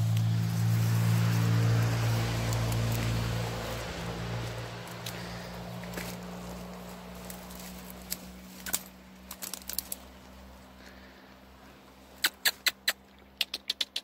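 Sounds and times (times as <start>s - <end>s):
sharp clicks: 12.2s - 14.0s.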